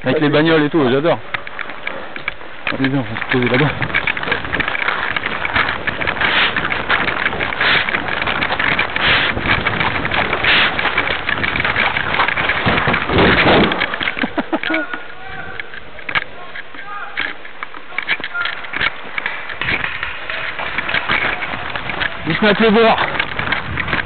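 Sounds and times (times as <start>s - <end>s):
wind buffeting microphone: 2.2s - 14.3s, 20.6s - 24.0s.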